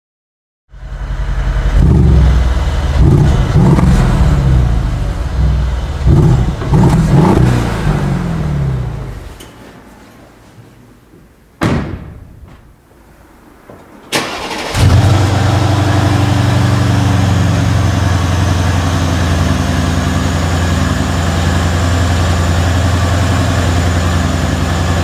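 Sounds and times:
car engine revving: 0.8 - 9.4, 14.2 - 25.0.

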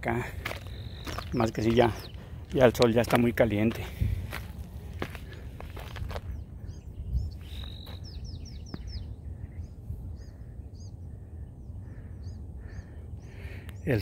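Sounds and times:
steady low rumble: 0.0 - 14.0
small bird chirping: 0.5 - 3.0, 6.2 - 11.0.

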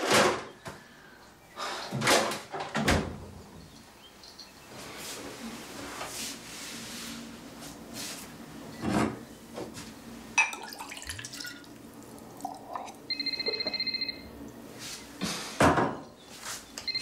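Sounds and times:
water at a sink: 10.3 - 13.8
dishes clattering: 10.4 - 11.0
phone ringing electronic trill: 13.1 - 14.4.

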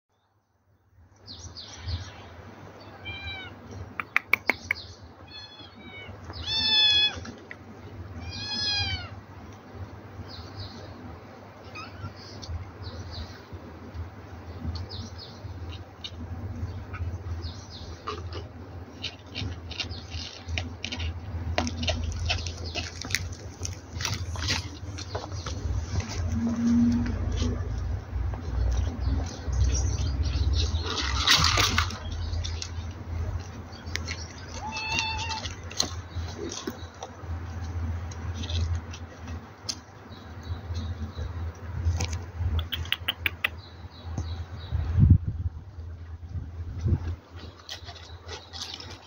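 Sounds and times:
kittens meowing: 2.8 - 3.7, 5.2 - 7.3, 8.2 - 9.2, 11.6 - 12.4, 34.5 - 35.6
sharp clicks: 4.0 - 4.8, 42.0 - 43.5.

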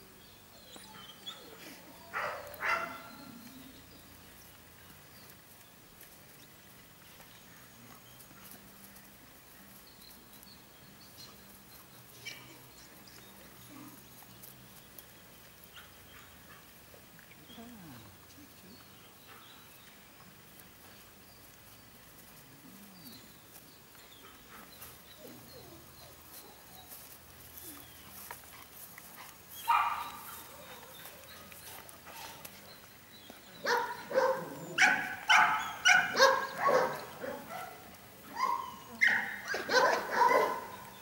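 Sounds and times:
puppy barking and yipping: 29.6 - 30.9, 33.7 - 40.8.

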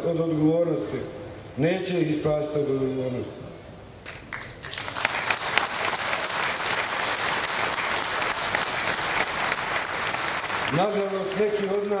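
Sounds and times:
large crowd applauding: 4.1 - 12.0.

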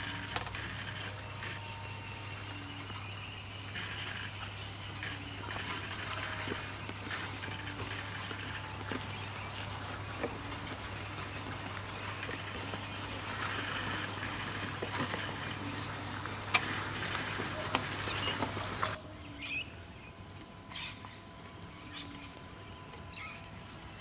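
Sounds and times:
wheels clicking over track: 0.0 - 19.0
model railcar motor hum: 0.0 - 24.0
bird chirping: 1.1 - 20.1.

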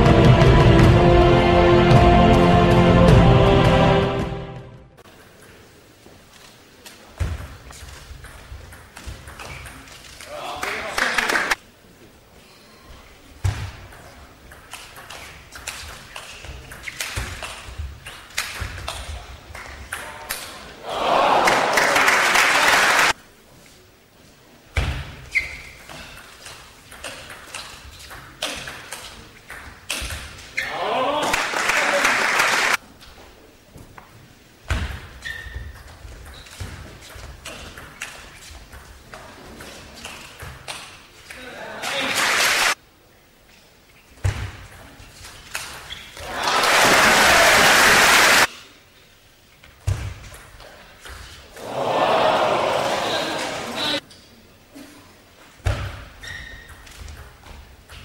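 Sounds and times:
crowd applause: 10.6 - 11.6, 20.9 - 23.2, 31.2 - 32.8, 41.8 - 42.8, 46.2 - 48.5, 51.6 - 54.0.

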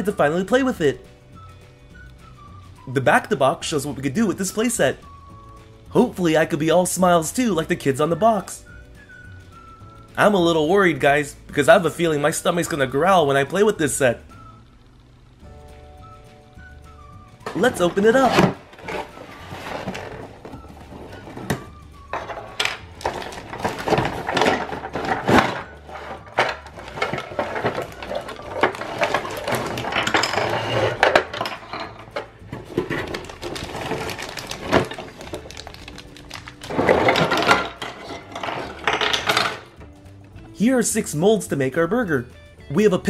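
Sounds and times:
cardboard and packaging rustling: 17.4 - 39.7
plastic pieces clattering on table: 17.5 - 20.4, 21.0 - 39.7.

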